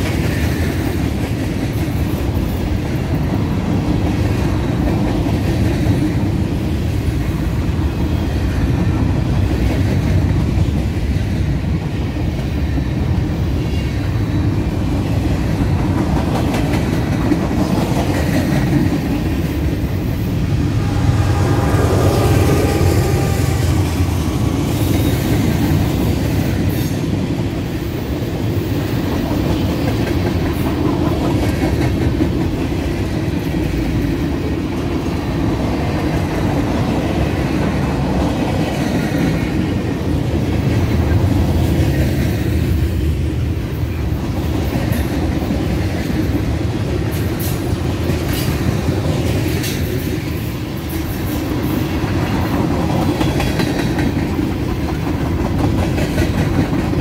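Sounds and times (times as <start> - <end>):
steel wheels rumbling on rails: 0.0 - 57.0.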